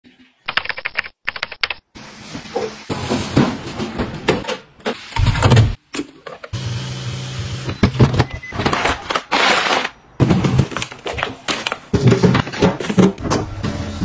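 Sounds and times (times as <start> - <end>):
cartons and bottles clattering: 7.8 - 13.6.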